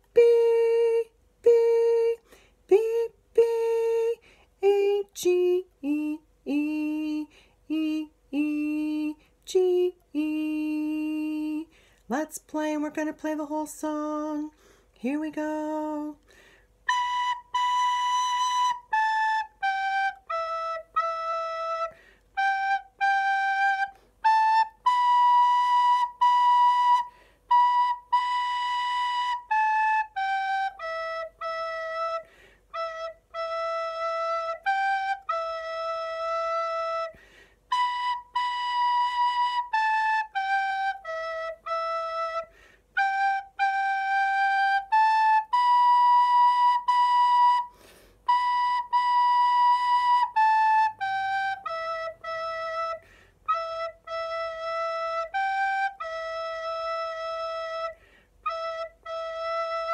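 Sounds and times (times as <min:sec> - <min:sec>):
recorder melody: 0:16.9 - 0:59.9.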